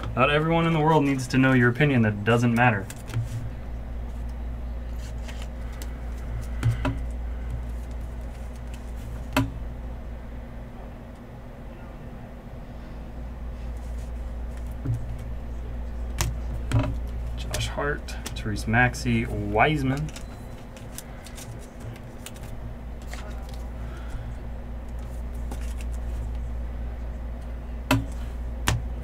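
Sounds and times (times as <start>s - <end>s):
low hum: 0.0s - 29.0s
trading cards clicking: 19.8s - 23.7s.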